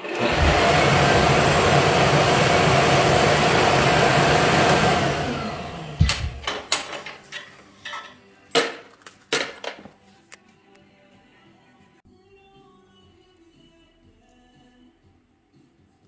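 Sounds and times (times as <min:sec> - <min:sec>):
wood lathe running: 0:00.0 - 0:06.8.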